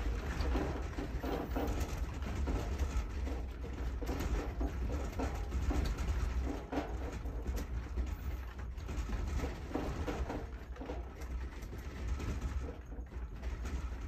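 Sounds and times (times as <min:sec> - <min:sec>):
household objects clicking and rattling: 0:00.0 - 0:14.0.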